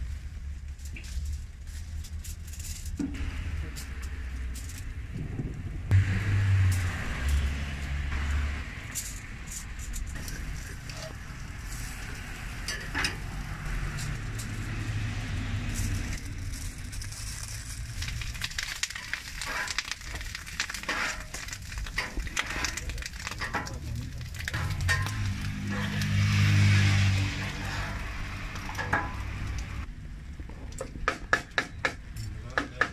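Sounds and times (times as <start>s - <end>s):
meat sizzling on a griddle: 10.2s - 29.8s
metal spatula scraping steel: 20.8s - 22.8s, 24.5s - 29.4s.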